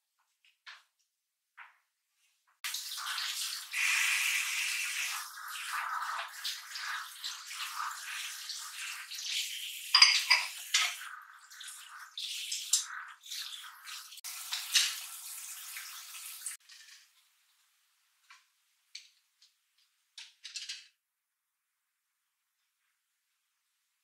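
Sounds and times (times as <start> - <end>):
water running into a sink: 2.6 - 16.9
dishes clinking together: 9.9 - 11.0.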